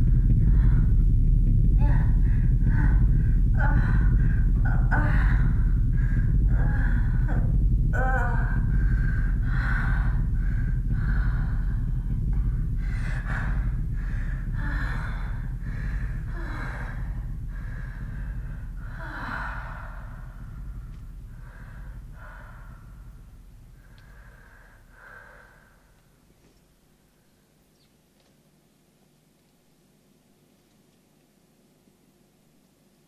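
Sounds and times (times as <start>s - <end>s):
person breathing hard: 0.0s - 26.2s
low steady drone: 0.0s - 27.7s.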